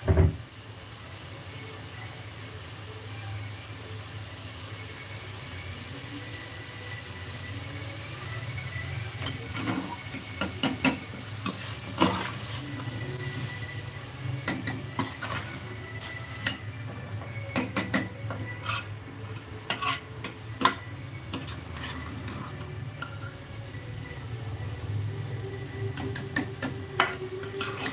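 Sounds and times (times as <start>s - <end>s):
faint sizzle: 0.0s - 27.9s
ladle scraping metal pot: 9.2s - 13.6s, 14.4s - 23.4s, 25.9s - 27.9s.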